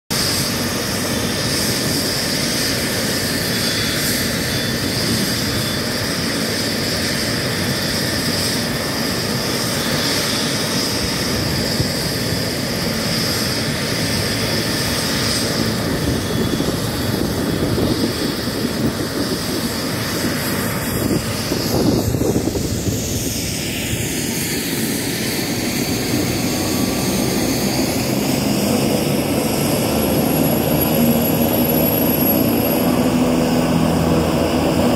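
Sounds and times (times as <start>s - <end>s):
helicopter rotor noise: 0.1s - 34.9s
helicopter turbine whine: 0.1s - 34.9s.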